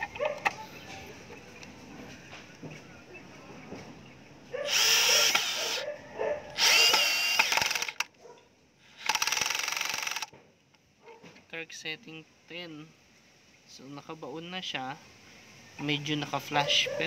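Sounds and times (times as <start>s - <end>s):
cordless drill driving screw into wood: 4.7s - 5.8s, 6.6s - 8.1s, 9.0s - 10.3s
torque clutch clicking: 6.9s - 8.1s, 9.0s - 10.3s.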